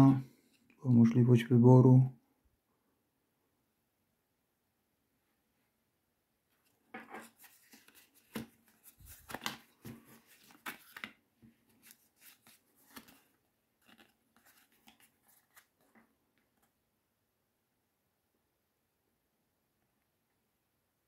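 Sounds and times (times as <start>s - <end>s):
paper card crinkling: 7.0s - 16.7s.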